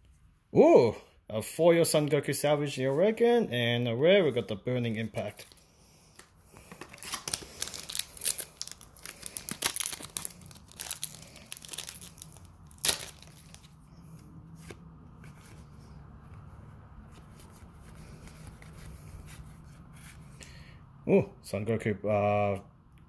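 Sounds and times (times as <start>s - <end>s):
foil wrapper tearing and crackling: 6.8s - 13.7s.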